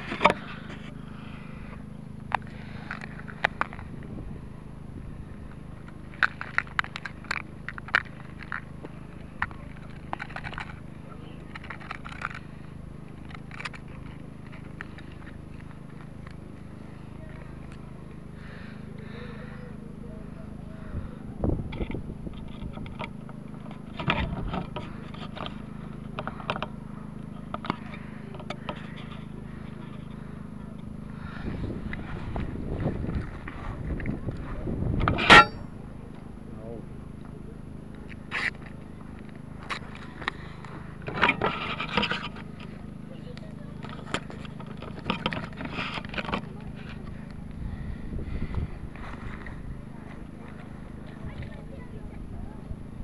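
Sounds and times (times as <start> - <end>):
low electrical hum: 0.0 - 53.0
microphone handling scrapes and clicks: 21.4 - 26.8, 31.2 - 35.7, 39.6 - 42.8, 43.8 - 51.6.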